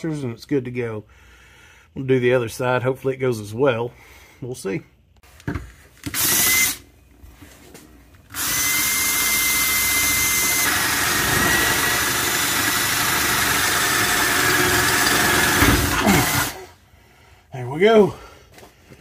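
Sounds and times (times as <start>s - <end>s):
cordless drill whining: 6.0s - 6.8s, 8.3s - 16.8s.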